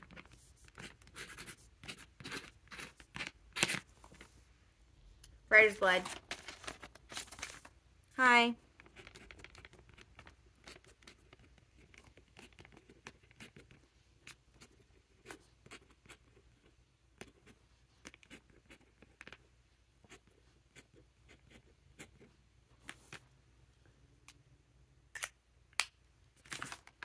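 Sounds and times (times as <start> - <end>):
pen nib scratching on paper: 0.0 - 4.3, 8.8 - 22.3.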